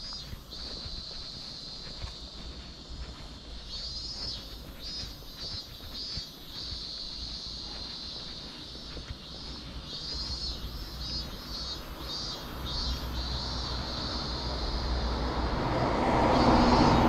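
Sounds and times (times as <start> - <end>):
cicadas buzzing: 0.0 - 17.0.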